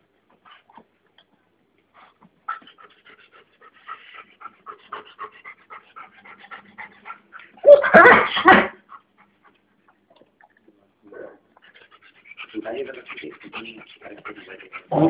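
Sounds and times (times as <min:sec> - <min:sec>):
dog panting: 0:01.9 - 0:09.8, 0:11.5 - 0:15.0.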